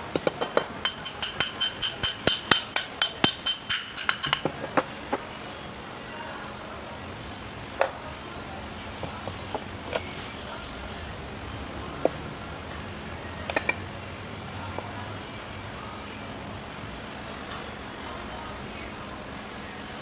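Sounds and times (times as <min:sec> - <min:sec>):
hammer tapping on metal: 0:00.1 - 0:05.2.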